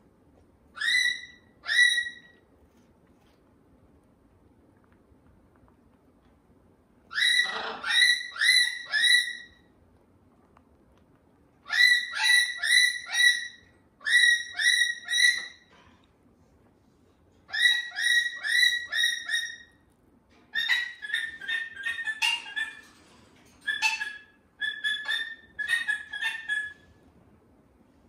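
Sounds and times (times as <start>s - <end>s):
cockatoo calling: 7.1s - 9.7s, 20.5s - 22.9s, 23.6s - 26.8s.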